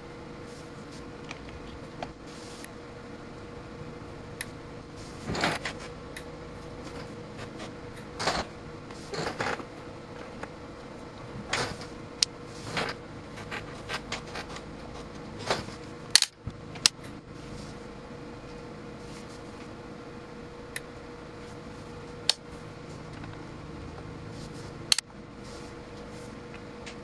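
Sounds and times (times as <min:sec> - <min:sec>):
rotary switch clicks: 0:16.2 - 0:17.1.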